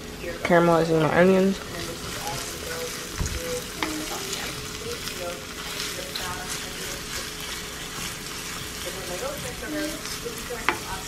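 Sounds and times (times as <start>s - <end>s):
onions sizzling in oil: 0.0s - 11.0s
wooden spoon scraping pan: 1.5s - 11.0s.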